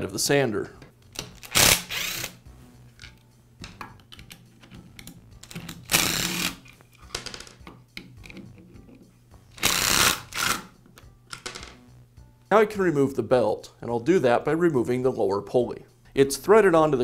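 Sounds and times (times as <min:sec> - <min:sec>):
cordless screwdriver running: 0:01.4 - 0:02.4, 0:05.8 - 0:06.6, 0:09.6 - 0:10.6.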